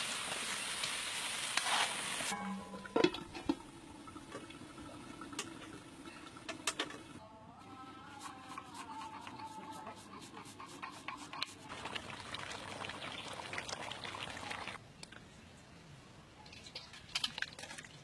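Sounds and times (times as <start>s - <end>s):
liquid being stirred in a pot: 8.4s - 14.8s
small clicks and scrapes: 16.4s - 18.0s.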